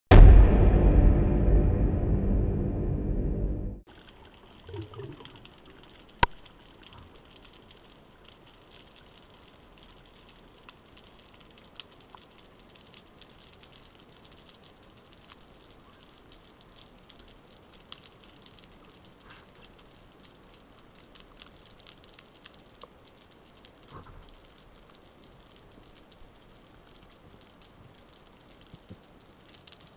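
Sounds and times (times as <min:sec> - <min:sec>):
intro music: 0:00.1 - 0:03.8
tiny clicks and crackles: 0:03.9 - 0:29.9.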